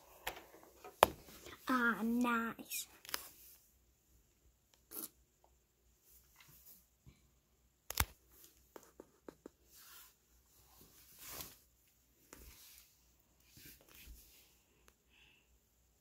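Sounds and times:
soft rustling: 0:08.3 - 0:14.8.

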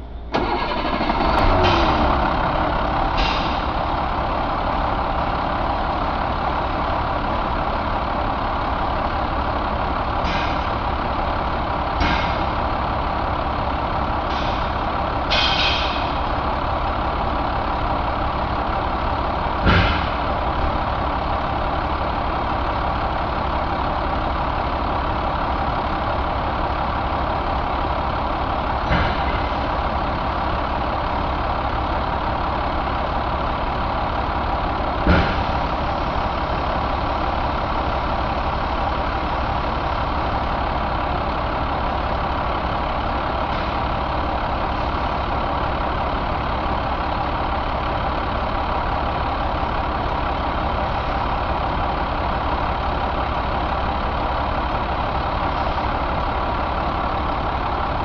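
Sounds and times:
diesel engine starting and idling: 0:00.0 - 0:58.0
sharp clanks or hisses: 0:03.2 - 0:03.7, 0:10.2 - 0:10.7, 0:15.3 - 0:16.2.

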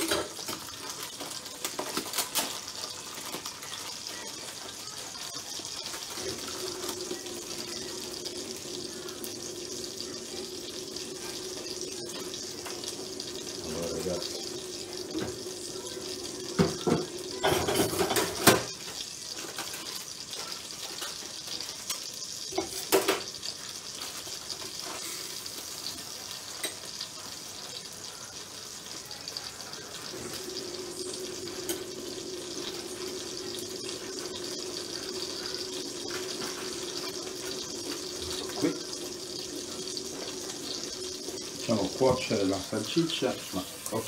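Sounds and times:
tap running into sink: 0:15.0 - 0:15.6, 0:16.5 - 0:18.8
dishes clattering against sink: 0:16.6 - 0:18.8.

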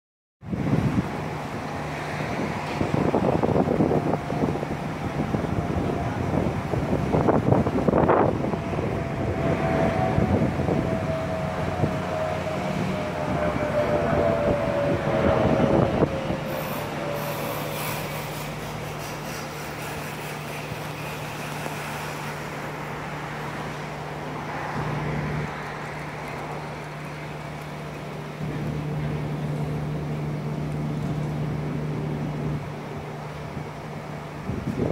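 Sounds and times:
jet airliner passing overhead: 0:00.6 - 0:34.9.

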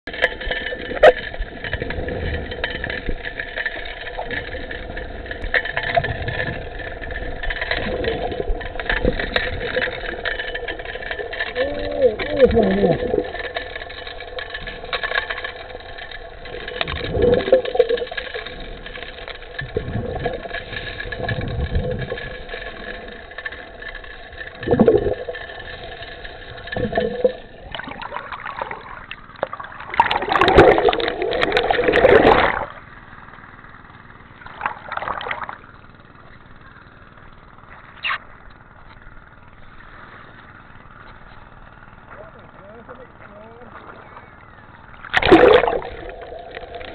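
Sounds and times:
underwater engine and pump: 0:00.0 - 0:46.9
water splashing: 0:00.1 - 0:32.9, 0:34.4 - 0:35.8, 0:44.8 - 0:46.9.

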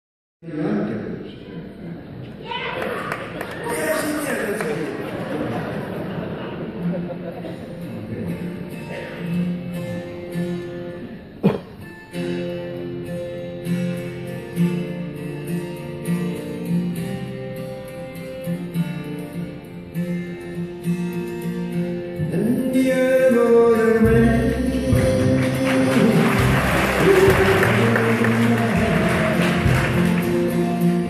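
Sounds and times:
acoustic guitar picking: 0:06.5 - 0:31.0
man singing: 0:22.2 - 0:31.0
electric bass guitar: 0:24.1 - 0:31.0.

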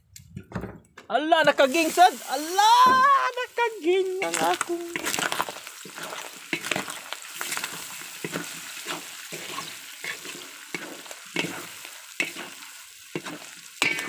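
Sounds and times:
meat sizzling in oil: 0:01.4 - 0:14.0
metal spatula scraping wok: 0:03.8 - 0:14.0.

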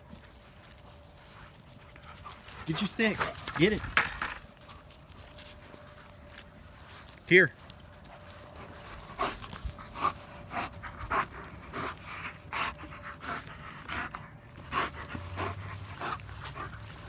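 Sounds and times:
dog panting: 0:00.6 - 0:05.6, 0:07.7 - 0:17.0.

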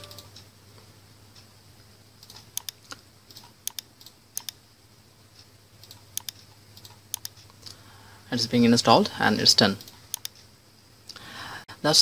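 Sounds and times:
low steady hum: 0:00.0 - 0:12.0
computer clicks: 0:02.2 - 0:04.6, 0:05.8 - 0:07.6, 0:09.8 - 0:10.5.

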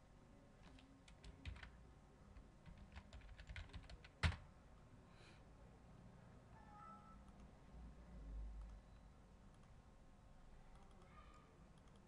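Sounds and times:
typing on computer keyboard: 0:00.6 - 0:01.8, 0:02.4 - 0:04.4, 0:10.7 - 0:12.0.

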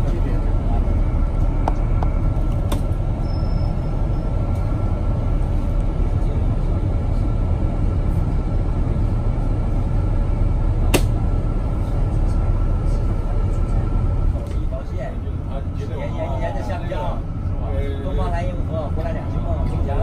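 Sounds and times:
vehicle engine and tyre rumble: 0:00.0 - 0:20.0.

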